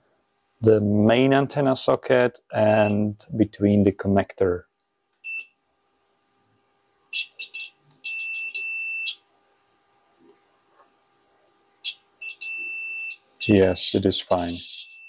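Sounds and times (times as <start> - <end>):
multimeter continuity beeps: 2.7 - 3.0, 5.2 - 5.6, 7.1 - 9.2, 11.8 - 15.0.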